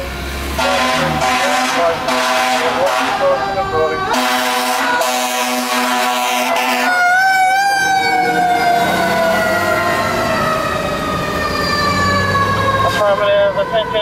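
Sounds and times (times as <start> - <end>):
horn-like tone: 0.6 - 3.4, 4.1 - 7.0
mechanical siren wail: 0.6 - 14.0.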